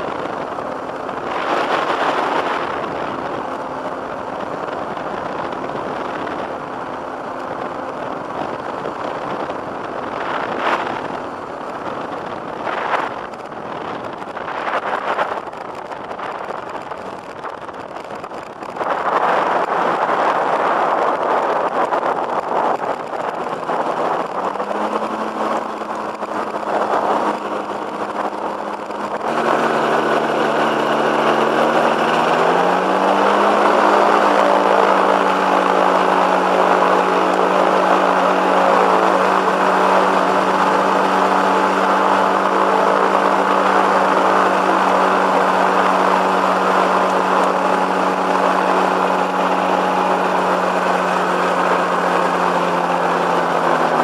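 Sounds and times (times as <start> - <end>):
microlight engine and propeller: 0.0 - 54.0
wind buffeting microphone: 0.0 - 54.0.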